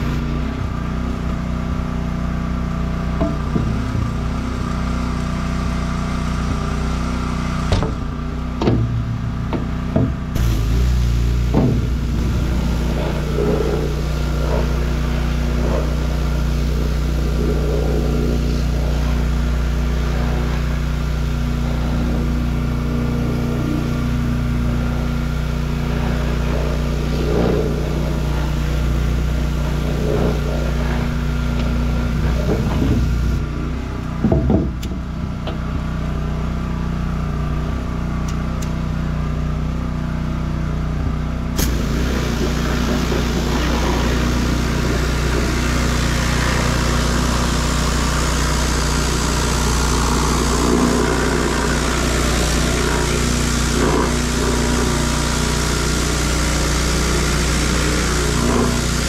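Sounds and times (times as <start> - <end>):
pressure washer engine running: 0.0 - 59.0
high-pressure spray hissing: 10.4 - 21.6, 41.6 - 59.0.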